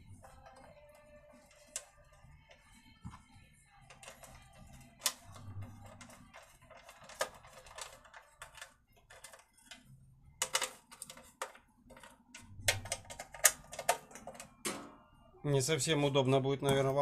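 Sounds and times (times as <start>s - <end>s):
tools clicking and knocking: 10.4s - 14.9s.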